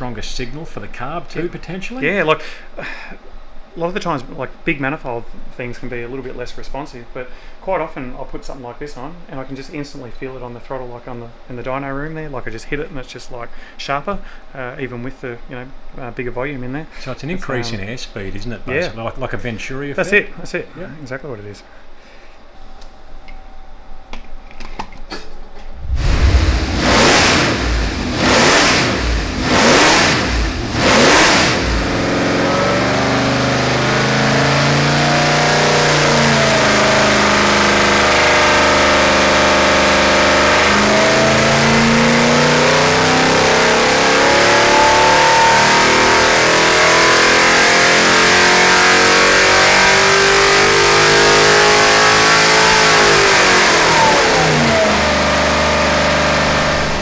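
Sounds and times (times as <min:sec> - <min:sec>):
engine revving on dyno: 0:25.8 - 0:57.0.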